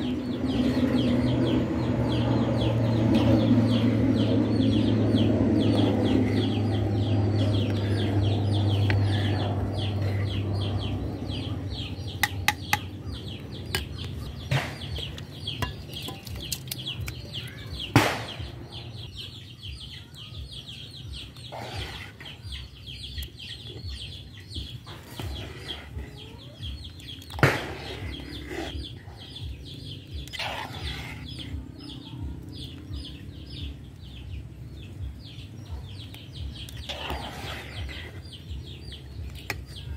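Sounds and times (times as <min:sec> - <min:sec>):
chickens clucking: 0:21.0 - 0:39.9.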